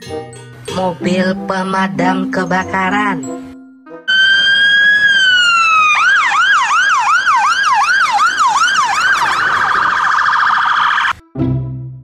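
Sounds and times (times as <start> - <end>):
fire engine sirens: 4.1 - 11.2.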